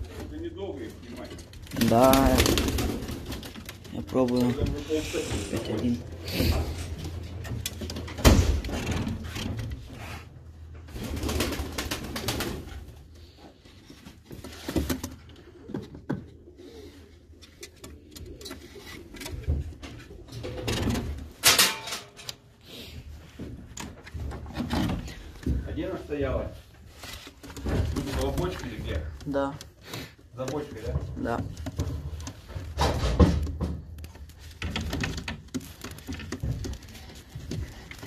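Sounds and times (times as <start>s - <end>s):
pigeons cooing: 15.1s - 21.2s.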